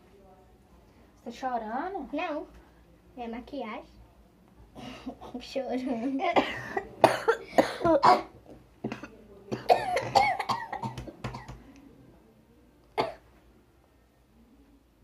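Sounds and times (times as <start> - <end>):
girls coughing: 6.2 - 11.5, 13.0 - 13.2.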